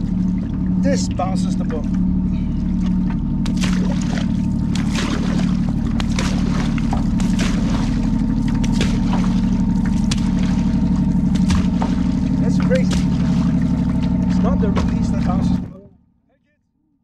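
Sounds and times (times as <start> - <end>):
steady low rumble: 0.0 - 16.5
paddle splashes in water: 1.6 - 15.7.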